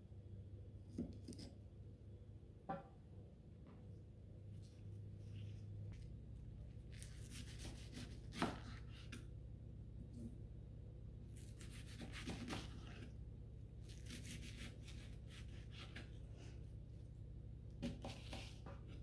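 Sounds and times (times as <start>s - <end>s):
low steady hum: 0.0s - 19.0s
knife slicing cabbage: 0.9s - 1.6s, 6.9s - 9.2s, 11.4s - 13.1s, 13.8s - 16.6s, 17.8s - 19.0s.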